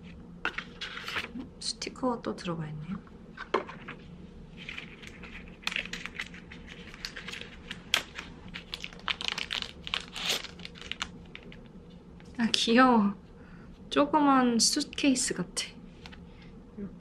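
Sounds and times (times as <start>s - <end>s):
paper and cardboard rustling: 0.5s - 1.4s
plastic bag crinkling: 4.6s - 11.7s.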